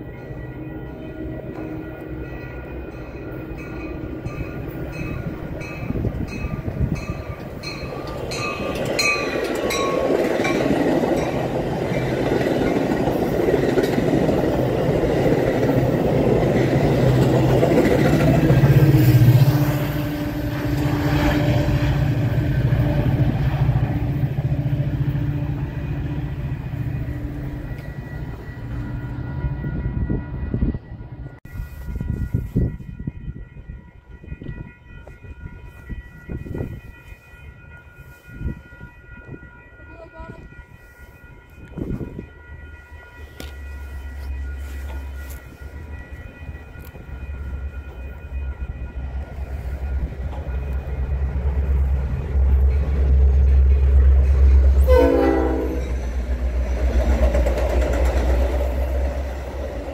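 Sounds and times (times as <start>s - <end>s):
bell ringing: 0.0s - 12.1s, 31.9s - 56.8s
train wheels clattering over rails: 56.4s - 59.9s.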